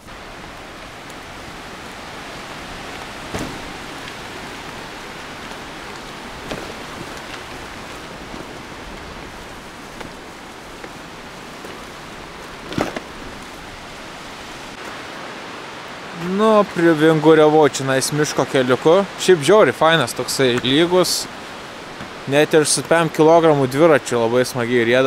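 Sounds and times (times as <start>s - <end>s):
bicycle tyres on gravel: 0.0s - 15.0s, 18.2s - 23.9s
bicycle knocking over bumps: 1.2s - 14.1s.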